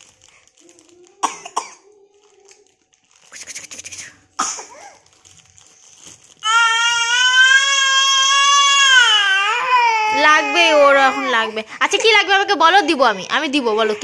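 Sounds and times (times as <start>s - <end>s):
plastic wrapping crinkling: 0.0s - 14.0s
toddler crying: 6.4s - 12.2s.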